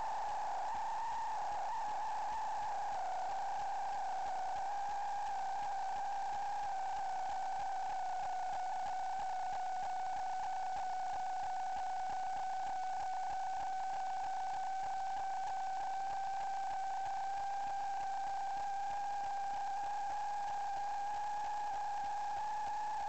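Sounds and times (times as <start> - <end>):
high-pitched electrical whine: 0.0 - 23.0.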